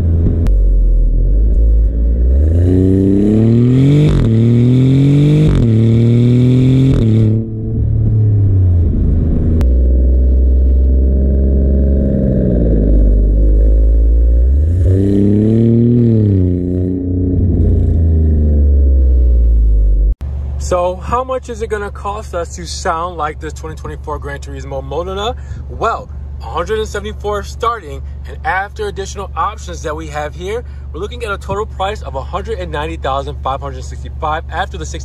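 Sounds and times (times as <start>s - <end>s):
engine revving surge: 0.0s - 20.2s
car exhaust under hard acceleration: 0.0s - 35.0s.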